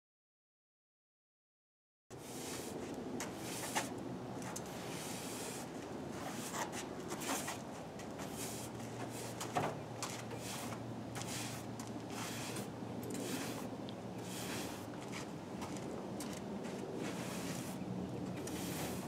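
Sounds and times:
brush sweeping dust off car: 2.2 - 7.6, 8.2 - 9.6, 10.4 - 15.3, 16.7 - 17.8, 18.4 - 19.0.

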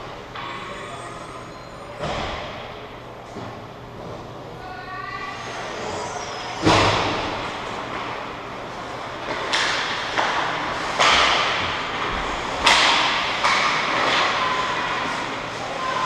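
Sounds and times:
puck and sticks knocking on boards: 9.2 - 15.2.

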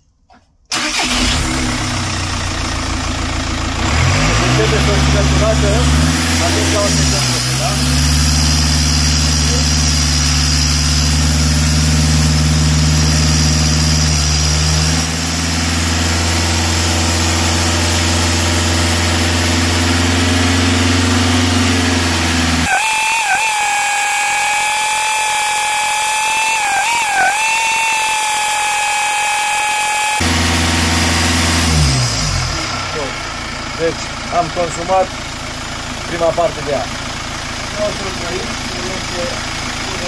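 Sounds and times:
diesel engine running: 0.7 - 40.0
high turbo whistle: 22.6 - 32.6.

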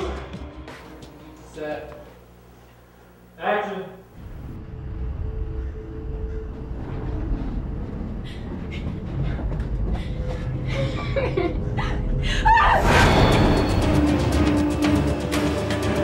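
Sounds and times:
low rumbling drone: 4.1 - 15.6
rising vocal cry: 12.3 - 13.1.

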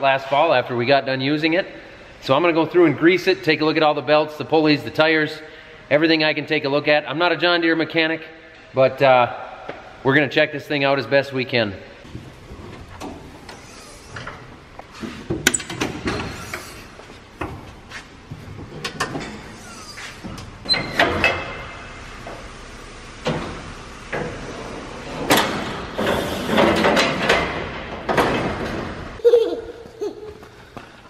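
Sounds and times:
metal panels clanking: 23.2 - 29.2.

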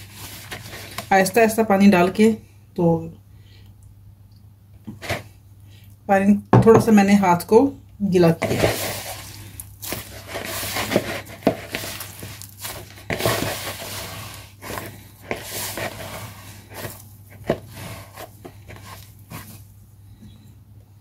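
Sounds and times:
hand kneading dough in plastic bowl: 0.0 - 2.4, 8.2 - 19.9.

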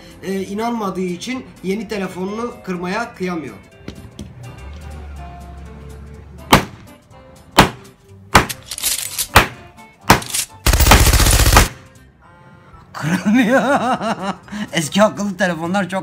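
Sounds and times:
loud rapid rattling: 10.7 - 11.7.

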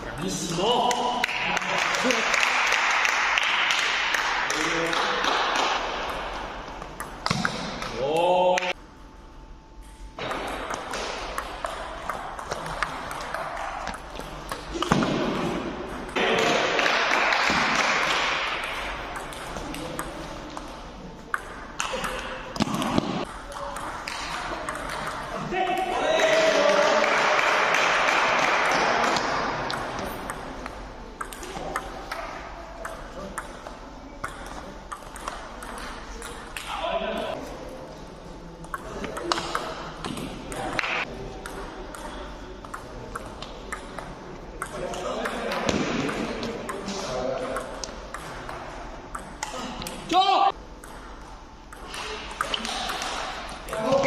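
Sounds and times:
people clapping: 0.7 - 6.0, 16.2 - 18.6, 26.0 - 29.8
table tennis ball bouncing: 3.0 - 8.7, 9.8 - 37.4, 38.6 - 50.0, 50.8 - 54.0
loud shout: 25.5 - 27.5, 50.1 - 50.6.

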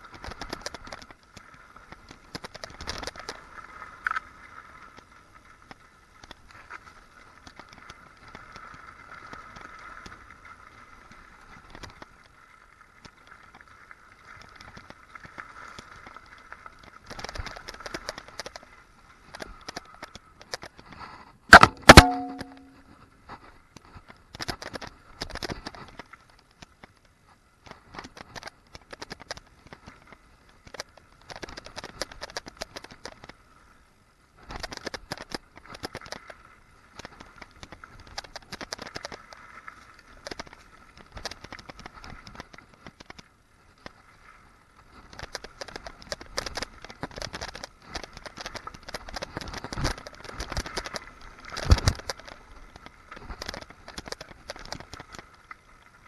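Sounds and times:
metallic knock with ringing: 21.6 - 22.8.

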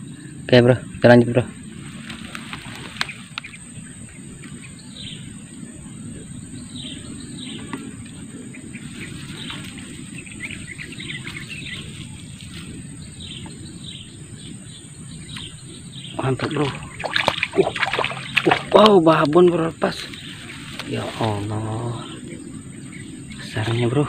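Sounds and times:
birds chirping: 0.0 - 24.0
high insect drone: 0.0 - 24.0
steady low rumble: 0.0 - 24.0
faint clicks: 2.0 - 3.6, 15.3 - 15.5.

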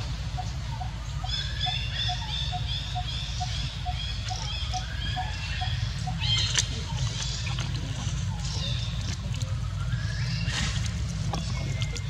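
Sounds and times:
high bird chirping: 0.0 - 9.2
steady low rumble: 0.0 - 12.0.

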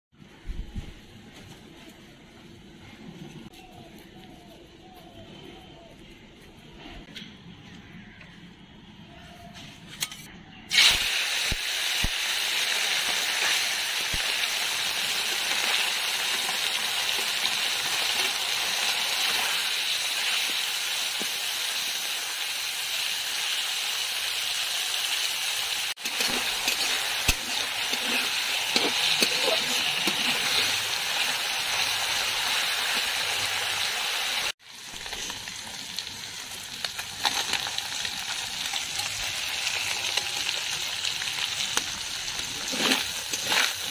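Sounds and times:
fish sizzling in hot oil: 10.7 - 43.9.

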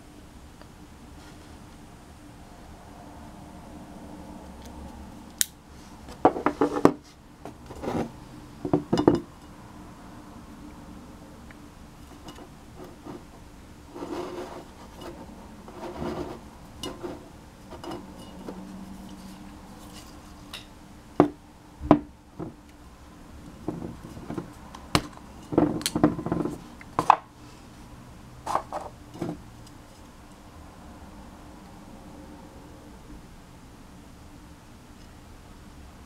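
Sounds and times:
handling knocks and rubbing: 23.6 - 27.2.

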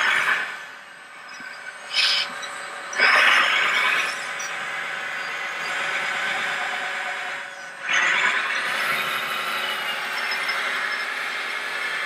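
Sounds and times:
electric motors whining: 0.0 - 12.0.

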